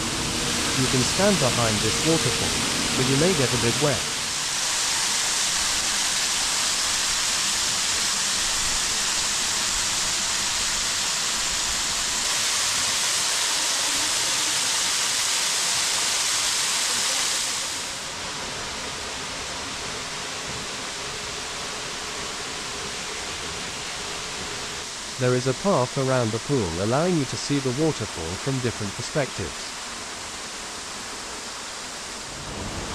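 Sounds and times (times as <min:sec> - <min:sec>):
waterfall pouring into pool: 0:00.6 - 0:32.9.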